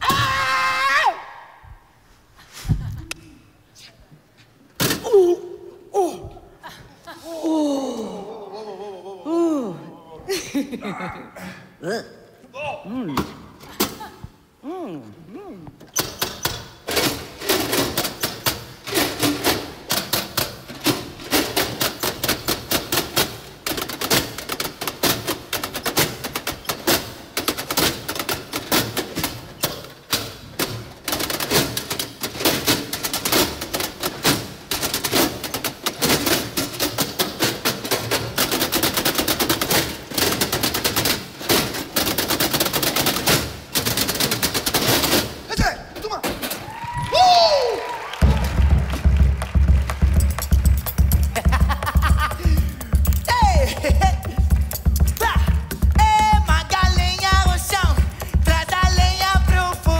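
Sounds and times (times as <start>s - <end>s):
metal toolboxes struck rhythmically: 16.6s - 46.6s, 48.2s - 59.9s
hand drumming on metal toolbox: 48.2s - 59.9s.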